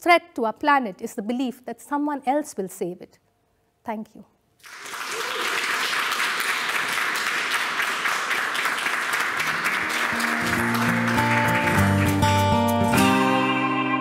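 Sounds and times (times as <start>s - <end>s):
audience applauding: 4.6s - 13.0s
plucked-string music: 10.2s - 14.0s.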